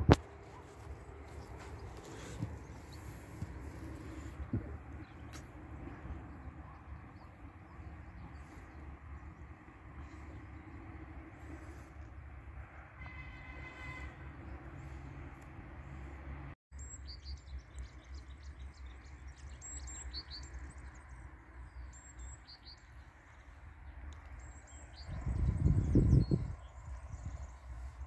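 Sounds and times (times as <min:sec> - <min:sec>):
low outdoor rumble: 0:00.0 - 0:12.9
small birds chirping: 0:00.3 - 0:12.2, 0:16.8 - 0:28.0.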